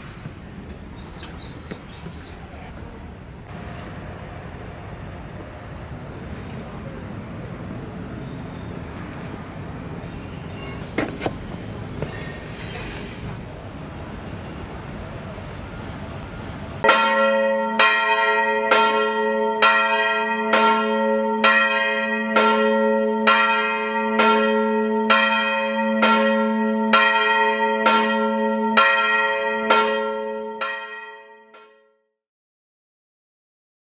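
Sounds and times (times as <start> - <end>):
large bell tolling: 16.8 - 31.9.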